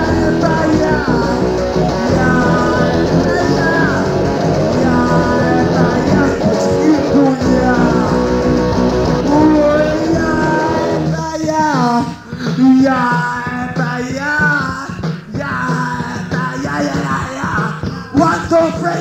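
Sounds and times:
sliding guitar lead line: 0.0 - 11.2
punk rock band playing: 0.0 - 19.0.

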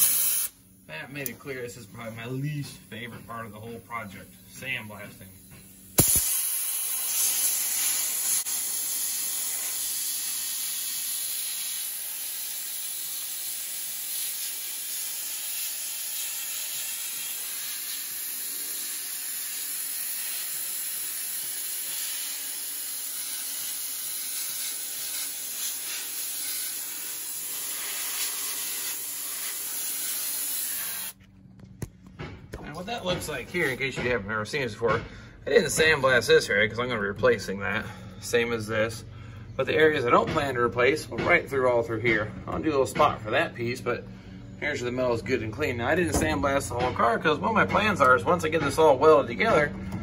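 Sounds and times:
sandblaster hissing: 0.0 - 0.6, 4.0 - 31.2.

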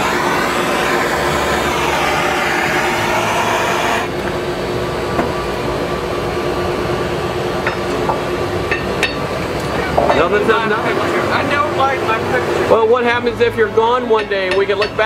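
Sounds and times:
low steady hum: 0.0 - 4.2
gas torch hissing: 0.0 - 4.3.

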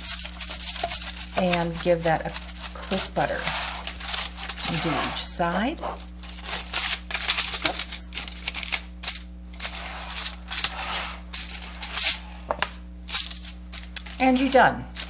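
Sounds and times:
pastry brush stroking: 0.0 - 6.8, 9.6 - 12.5
foil crinkling and rustling: 0.0 - 15.0.

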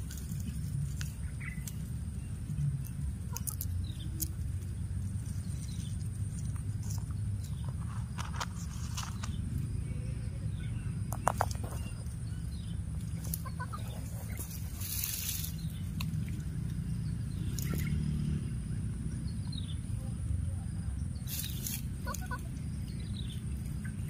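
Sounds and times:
steady low rumble: 0.0 - 24.0
high rustle: 13.1 - 16.0, 21.3 - 22.4.

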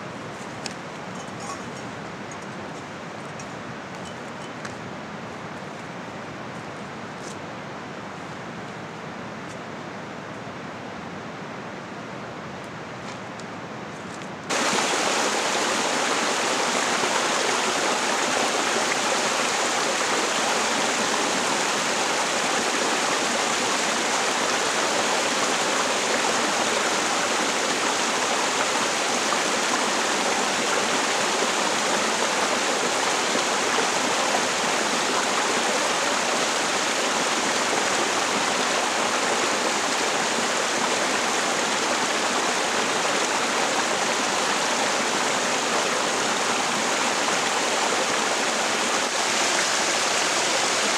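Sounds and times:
small waterfall splashing: 14.5 - 50.9.

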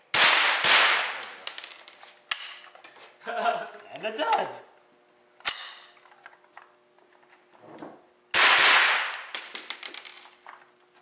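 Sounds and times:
loud rifle shot: 0.1 - 1.2, 8.3 - 9.1.

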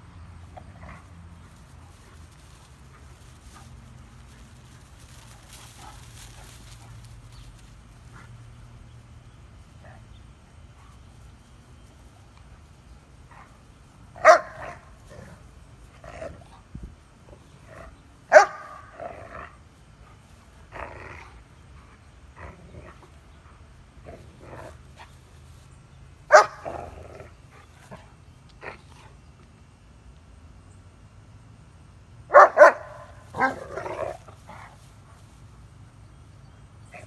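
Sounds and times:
dogs growling and yipping: 0.5 - 2.2, 20.7 - 21.5, 33.3 - 34.7
dogs barking: 14.2 - 14.9, 18.3 - 19.0, 26.3 - 26.7, 32.3 - 34.2.

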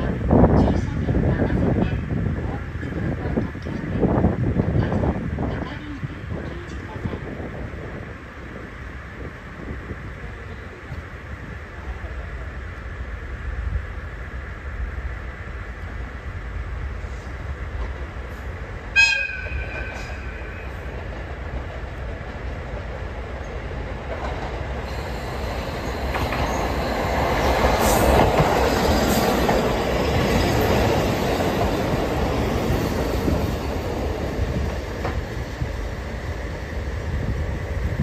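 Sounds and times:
diesel railcar engine: 0.0 - 38.0
train wheels on rails: 0.0 - 38.0
train horn blast: 18.9 - 20.8.

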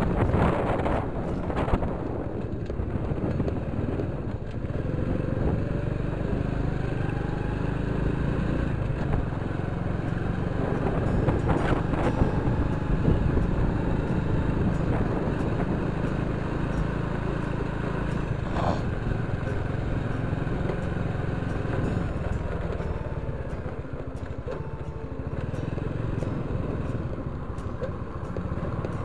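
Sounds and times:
motorcycle engine running: 0.0 - 29.0
road noise: 0.0 - 29.0.

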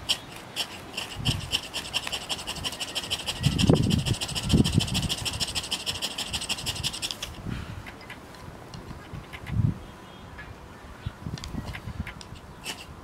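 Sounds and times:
ferro rod scraping: 0.0 - 8.2.

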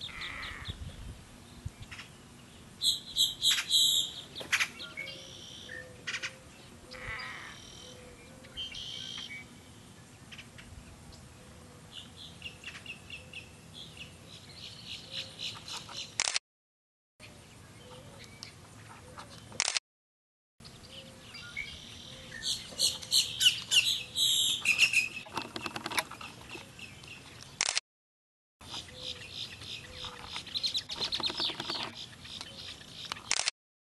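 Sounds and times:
birds chirping: 0.0 - 11.3, 20.6 - 27.6, 28.6 - 33.3.

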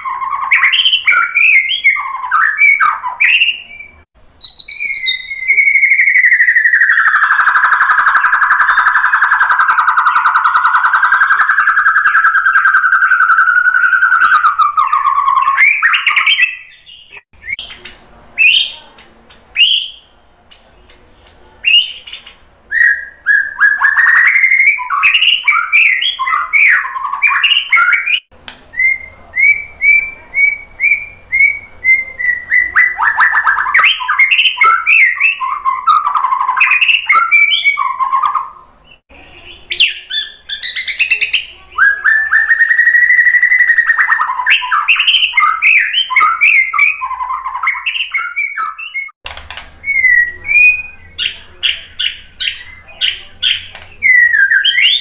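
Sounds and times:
songbird whistles and trills: 0.0 - 49.2, 49.8 - 55.0.

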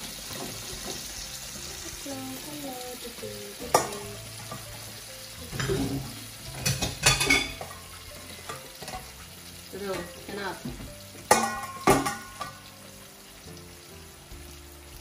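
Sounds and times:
sauce sizzling in a pan: 0.0 - 15.0
spatula clinking on pan: 3.7 - 4.6, 6.6 - 9.2, 11.3 - 12.7.

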